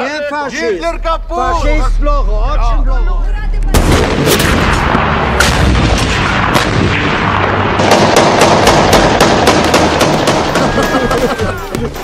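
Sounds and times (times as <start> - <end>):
artillery fire: 3.7 - 11.0
gunfire: 3.7 - 11.0.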